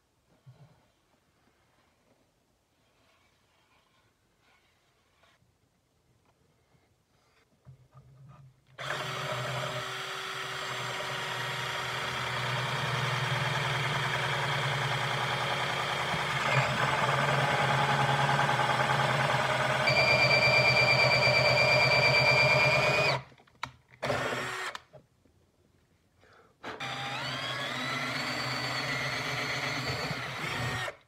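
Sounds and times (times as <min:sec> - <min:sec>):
high drill whine: 0:08.8 - 0:23.2, 0:24.0 - 0:24.8, 0:26.8 - 0:31.0
cordless drill boring into wood: 0:08.8 - 0:23.3, 0:24.0 - 0:24.9, 0:26.7 - 0:31.0.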